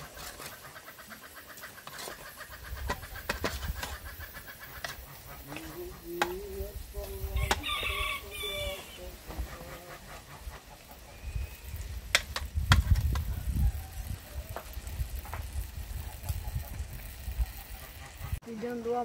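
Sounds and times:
chicken clucking: 0.0 - 11.5.

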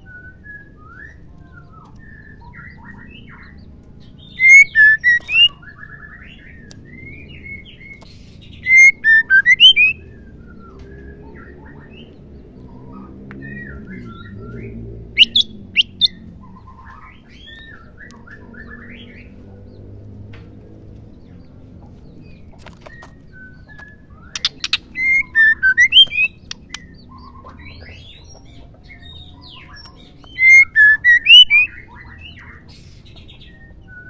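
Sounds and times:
bird whistled phrases: 0.0 - 3.5, 4.2 - 7.9, 8.6 - 12.1, 13.4 - 16.2, 22.9 - 28.2, 29.0 - 32.6
bird twittering chirps: 0.0 - 19.9, 21.0 - 34.0.

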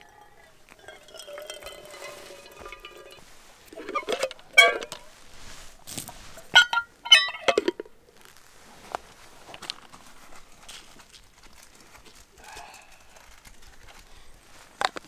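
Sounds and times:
clinks and knocks on metal mug: 0.0 - 3.2
soft handling: 0.0 - 7.1.

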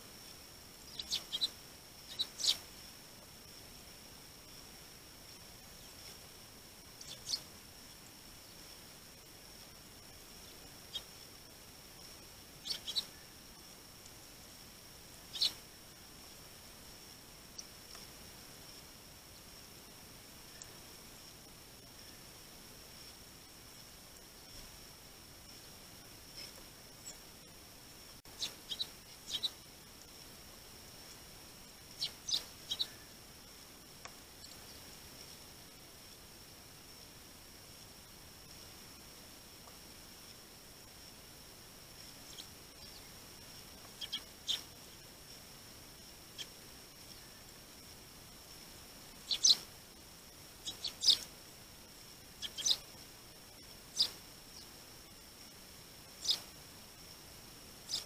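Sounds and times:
faint high whine: 0.0 - 58.0
sparrows chirping: 0.8 - 2.7, 6.9 - 8.6, 10.0 - 11.2, 12.0 - 13.4, 15.2 - 15.7, 26.3 - 27.3, 28.3 - 29.7, 31.9 - 33.2, 34.3 - 35.4, 42.1 - 44.8, 46.3 - 47.5, 49.1 - 49.7, 50.6 - 51.3, 52.3 - 54.8, 56.1 - 56.5, 57.8 - 58.0.

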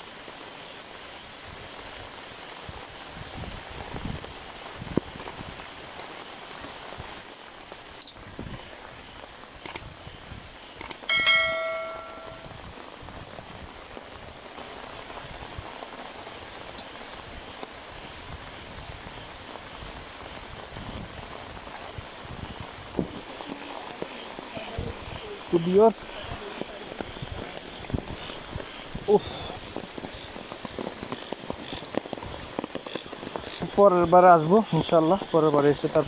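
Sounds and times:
rain hissing on wet ground: 0.0 - 36.0
sharp metallic ring: 11.1 - 12.5.

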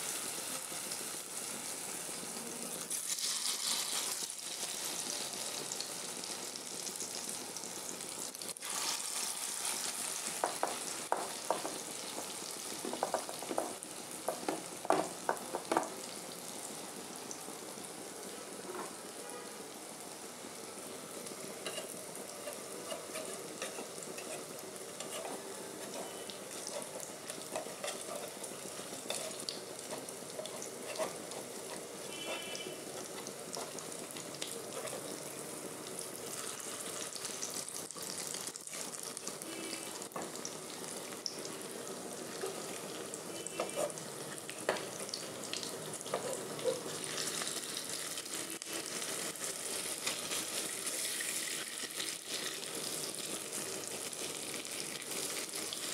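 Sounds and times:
food sizzling in hot oil: 0.0 - 55.9.

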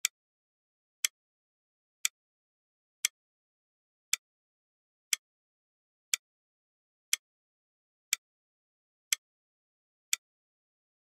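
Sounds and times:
timer ticking clicks: 4.0 - 4.2.

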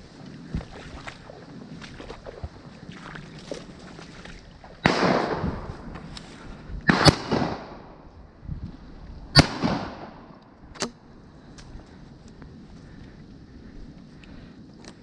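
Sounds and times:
shotgun shots with echo: 4.8 - 5.7, 6.9 - 7.9, 9.4 - 10.2.

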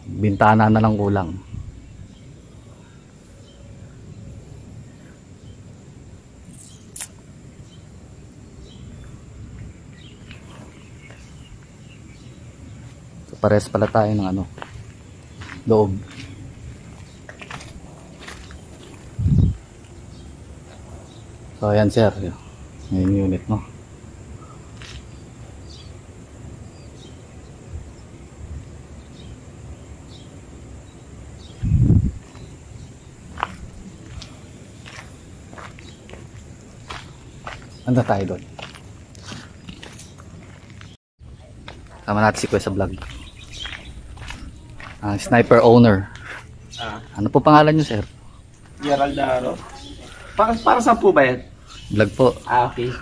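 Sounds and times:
steady low rumble: 0.0 - 39.2, 41.2 - 53.0
faint bird chirps: 6.4 - 23.6, 40.8 - 53.0.

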